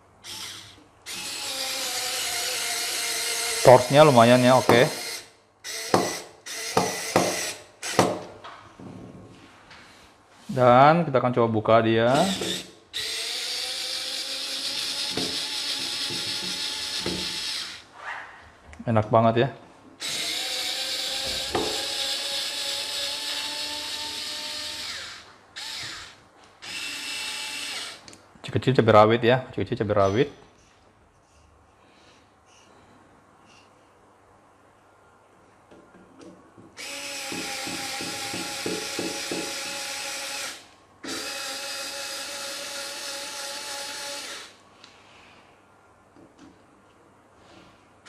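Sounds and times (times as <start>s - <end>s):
electric screwdriver whirring: 0.2s - 8.0s, 12.2s - 17.8s, 20.0s - 28.0s, 36.8s - 44.6s.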